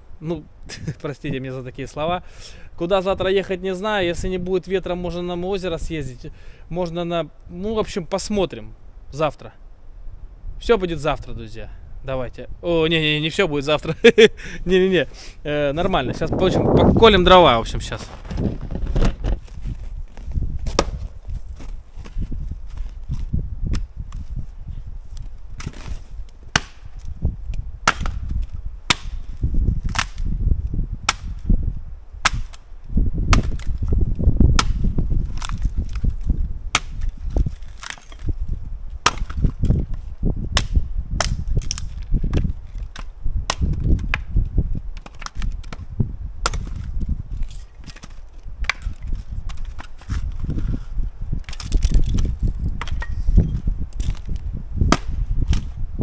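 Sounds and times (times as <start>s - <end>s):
axe splitting firewood: 20.6s - 22.1s, 25.6s - 30.3s, 31.0s - 31.4s, 32.2s - 32.7s, 33.3s - 40.0s, 40.6s - 50.7s, 51.4s - 55.8s.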